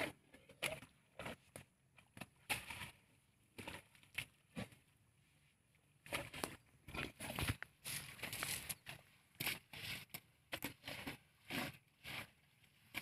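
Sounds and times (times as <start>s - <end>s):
elephants scraping soil: 6.1s - 13.0s.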